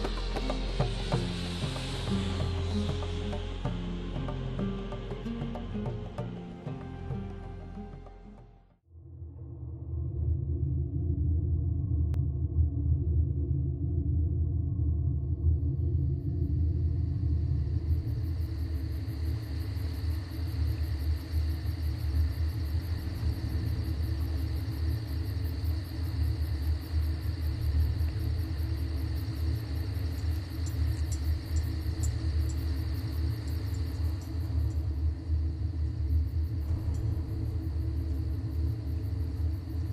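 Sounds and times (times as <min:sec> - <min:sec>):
steady low rumble: 0:09.0 - 0:39.9.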